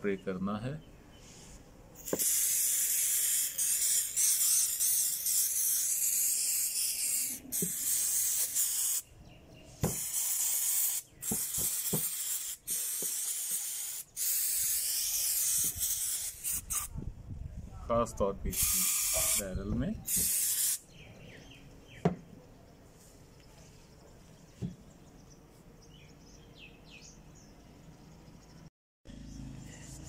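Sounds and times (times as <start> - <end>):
aerosol can spraying hiss: 2.0 - 9.0, 9.8 - 16.9, 18.5 - 19.4, 20.0 - 20.8.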